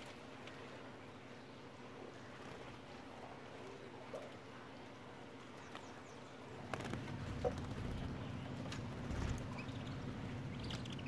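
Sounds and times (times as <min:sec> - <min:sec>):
low steady hum: 0:00.0 - 0:11.0
faint bird chirps: 0:05.5 - 0:11.0.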